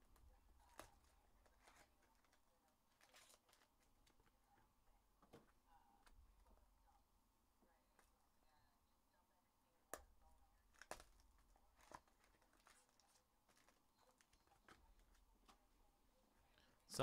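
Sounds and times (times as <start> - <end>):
foil wrapper crinkling and tearing: 0.7 - 4.2, 10.7 - 15.2.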